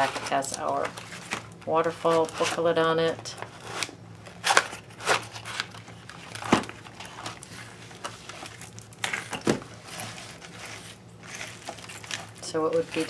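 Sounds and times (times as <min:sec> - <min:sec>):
paper pages rustling: 0:03.4 - 0:13.0.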